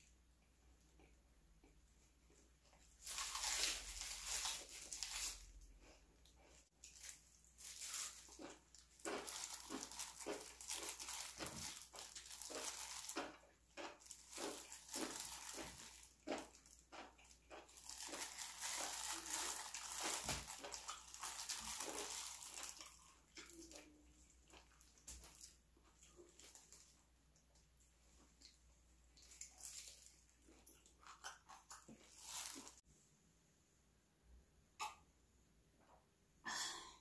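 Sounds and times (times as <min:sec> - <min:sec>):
plastic glove crinkling: 0:02.8 - 0:05.7, 0:06.8 - 0:27.1, 0:28.3 - 0:30.4, 0:31.1 - 0:32.8
wet chewing: 0:04.5 - 0:32.8.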